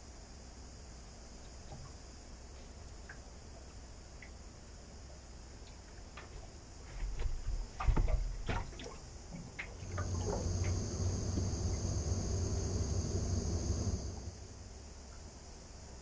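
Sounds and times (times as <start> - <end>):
steady low hum: 0.0 - 16.0
high hiss: 10.0 - 14.6.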